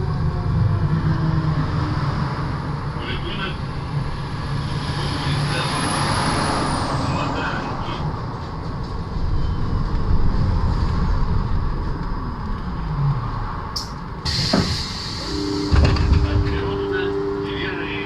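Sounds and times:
road noise: 0.0 - 18.0
trolleybus electric drive whine: 0.0 - 18.0
air brake hiss: 14.2 - 16.1.

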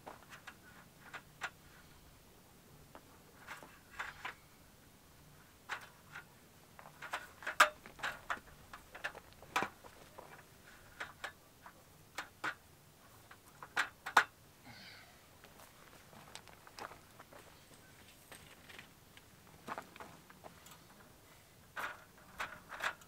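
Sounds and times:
camp gear clicking and knocking: 0.0 - 1.6, 2.9 - 4.4, 5.6 - 14.4, 21.7 - 23.0.

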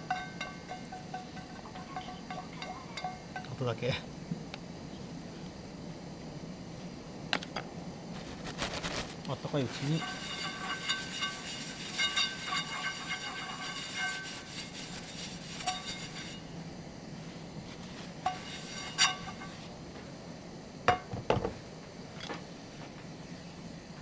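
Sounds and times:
cookware knocking and clinking: 0.0 - 3.6
ringing squeal of metal pan: 0.0 - 3.6, 9.8 - 16.5, 18.3 - 19.6
paper towel rubbing frying pan: 8.4 - 16.4, 17.7 - 19.7.

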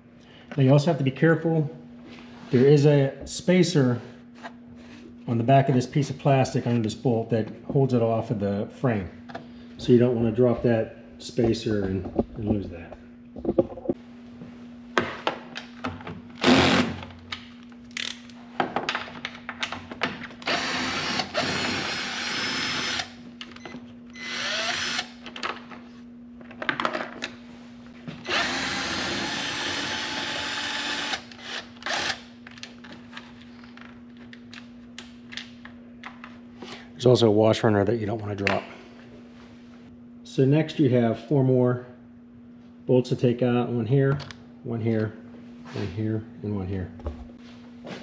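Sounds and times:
cordless drill spinning out bolts: 28.2 - 32.2.

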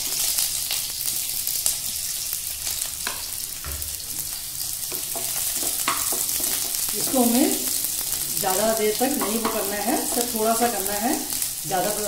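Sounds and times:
onions sizzling in oil: 0.0 - 12.0.

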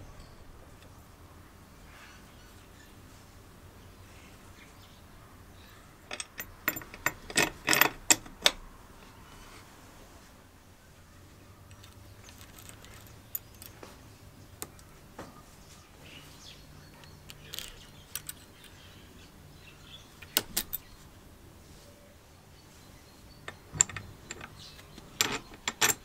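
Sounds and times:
small steel parts clinking: 6.1 - 8.6, 11.7 - 13.9, 17.0 - 19.0, 20.2 - 20.9, 23.4 - 26.0.

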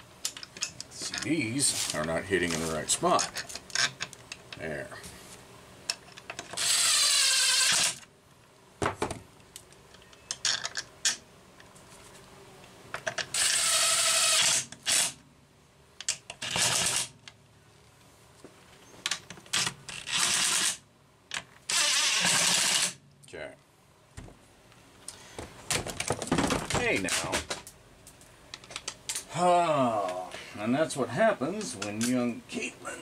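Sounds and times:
impact driver driving screws: 6.4 - 8.0, 13.3 - 15.2, 16.4 - 17.1, 19.6 - 20.8, 21.7 - 23.0.

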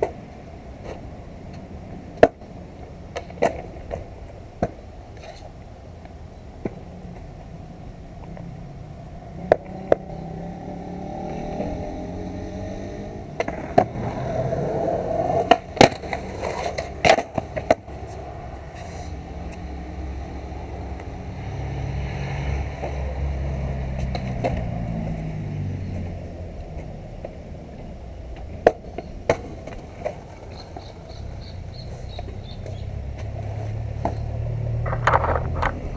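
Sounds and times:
skateboard clacking on ground: 0.0 - 7.3, 9.3 - 10.1, 13.2 - 19.7, 22.7 - 23.2, 23.9 - 25.2, 25.9 - 35.9
skateboard wheels rolling on concrete: 0.0 - 35.9.

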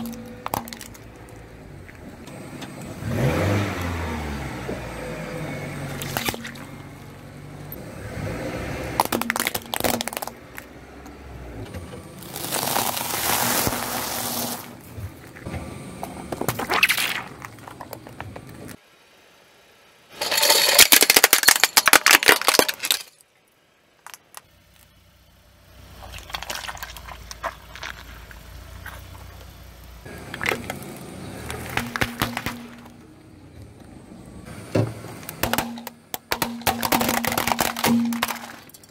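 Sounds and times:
low engine rumble: 0.0 - 20.1, 23.4 - 38.9
sharp cracks and knocks: 6.0 - 6.7, 8.9 - 10.7, 20.8 - 23.1, 30.1 - 33.0, 34.7 - 38.9
tyre crushing plastic: 9.0 - 10.6, 12.2 - 15.4, 20.2 - 23.2, 31.4 - 33.0, 35.4 - 38.9.

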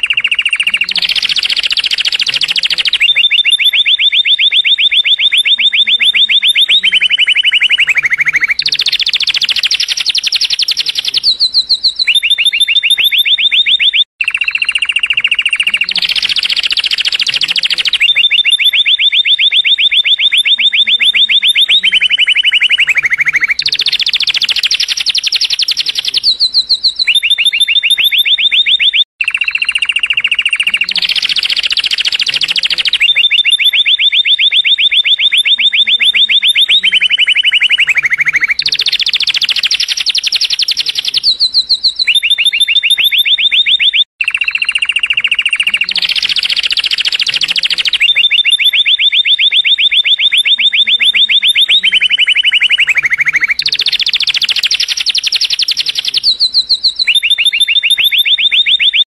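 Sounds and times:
canary singing trills: 0.0 - 59.0.

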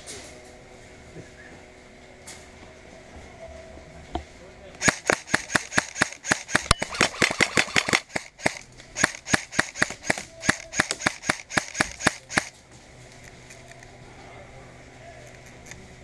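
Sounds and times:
airsoft rifle rapid shots: 4.8 - 12.5.

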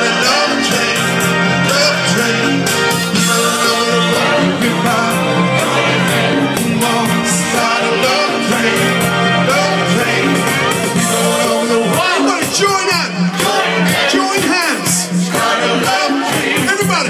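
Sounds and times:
man singing through microphone: 0.0 - 5.7, 6.6 - 13.2
music with bass and drums: 0.0 - 17.0.

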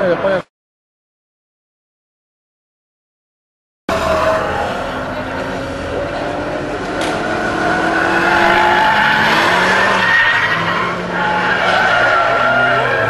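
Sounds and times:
race car engines revving: 3.9 - 13.0
tyres squealing: 6.9 - 13.0.

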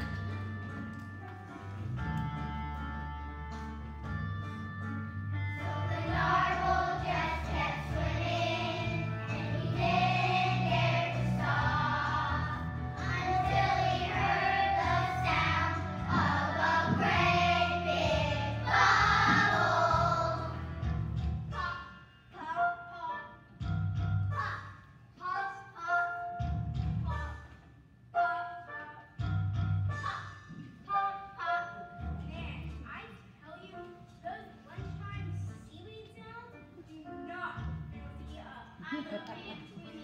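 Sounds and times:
instrumental accompaniment with bass: 0.0 - 21.8, 26.4 - 27.5.

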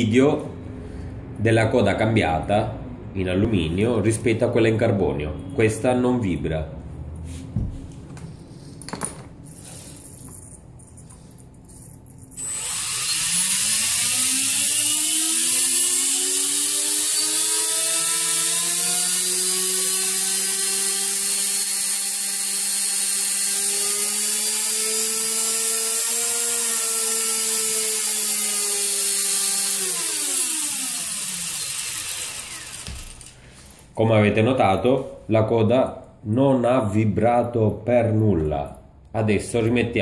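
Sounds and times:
model helicopter motor whine: 12.4 - 33.3.

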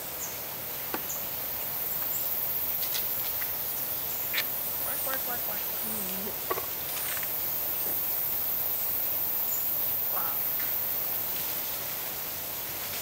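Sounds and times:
steady hiss: 0.0 - 13.0
monkeys peeping: 1.9 - 10.8.

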